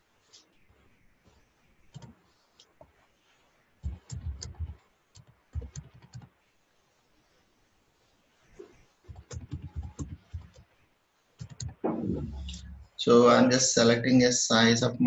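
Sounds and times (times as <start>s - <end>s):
computer keyboard typing: 1.9s - 2.2s, 3.8s - 6.3s, 9.1s - 10.6s, 11.4s - 12.7s.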